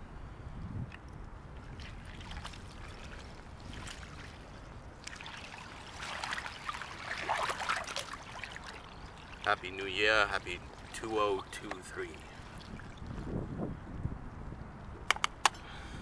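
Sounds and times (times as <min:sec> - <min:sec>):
icy water sloshing and splashing: 0:01.5 - 0:13.6.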